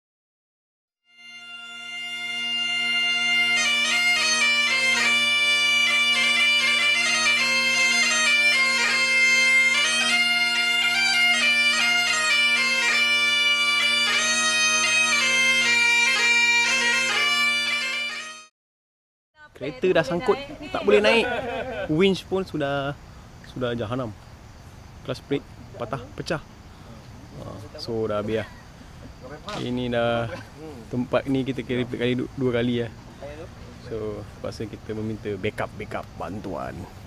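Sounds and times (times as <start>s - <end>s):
instrumental melody over drone: 1.1s - 18.5s.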